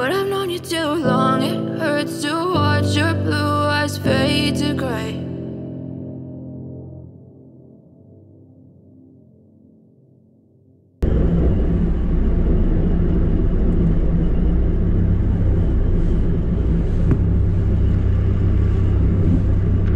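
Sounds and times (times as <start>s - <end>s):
rail vehicle engine rumbling: 11.0s - 19.9s.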